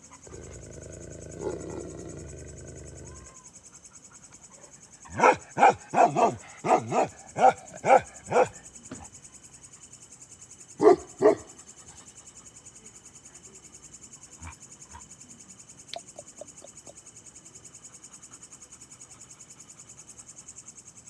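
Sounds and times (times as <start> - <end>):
crickets chirping: 0.0 - 21.0
dog barking: 5.1 - 8.6, 10.8 - 11.5.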